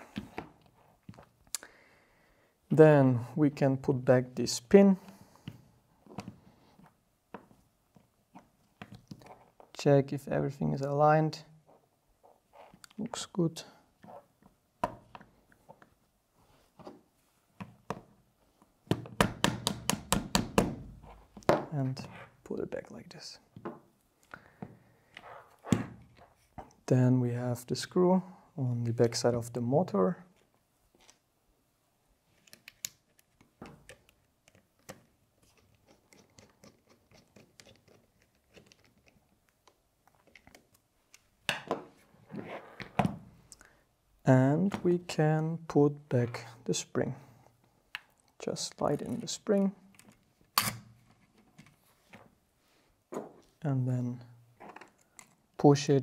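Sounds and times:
plastic and metal parts clicking: 32.4s - 41.3s.

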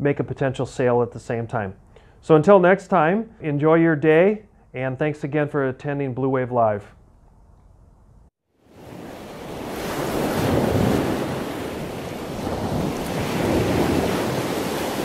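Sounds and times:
rushing surf-like noise: 8.7s - 15.0s.

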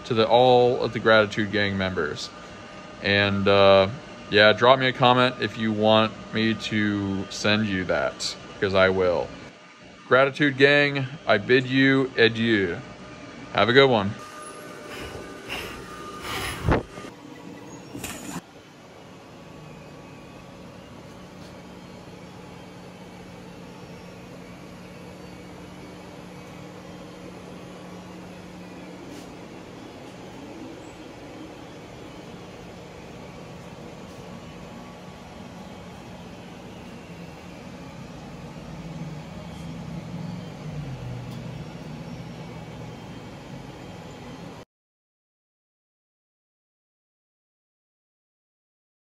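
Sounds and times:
constant low hum: 0.0s - 44.6s
fans and motors whirring: 0.0s - 44.6s
steady low drone: 19.2s - 43.9s.

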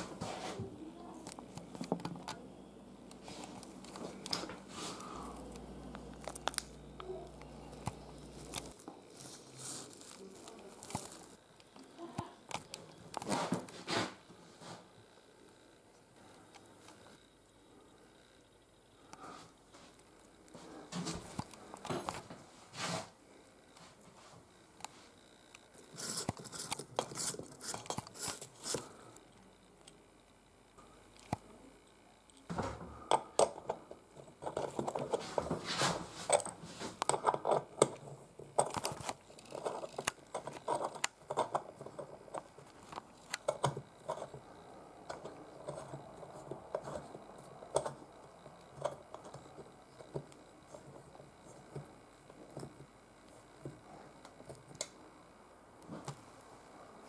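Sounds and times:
metal parts clicking and scraping: 25.8s - 28.9s, 33.1s - 44.4s.

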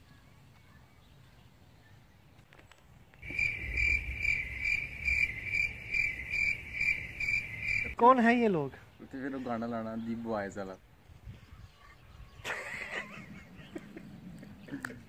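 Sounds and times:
cricket chirping: 3.2s - 8.0s.

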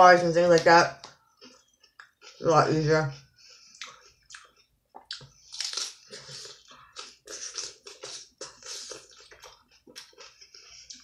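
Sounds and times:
crunchy chewing of salad: 3.6s - 11.0s.

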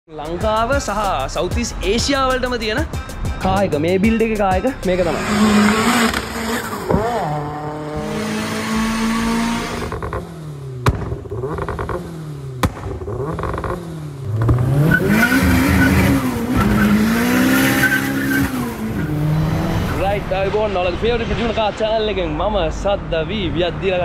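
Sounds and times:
car engine revving: 4.8s - 21.6s
sharp exhaust cracks: 8.0s - 19.1s.

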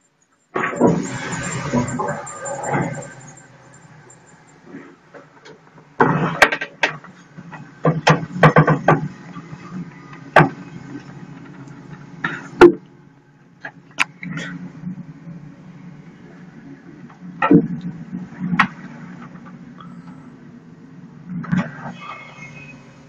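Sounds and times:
sharp clicks and knocks: 5.1s - 9.2s.

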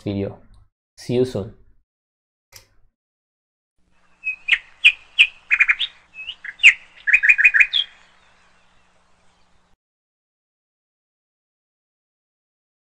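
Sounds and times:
bird chirping: 4.0s - 9.8s.

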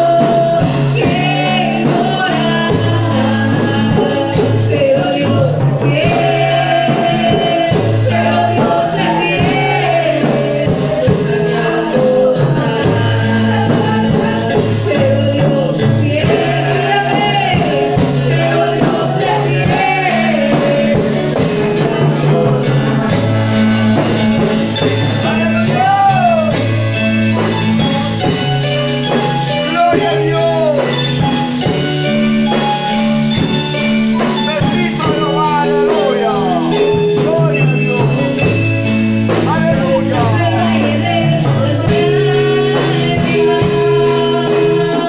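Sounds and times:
woman singing: 0.0s - 24.9s, 39.5s - 45.0s
drum kit: 0.0s - 45.0s
electronic keyboards: 0.0s - 45.0s.

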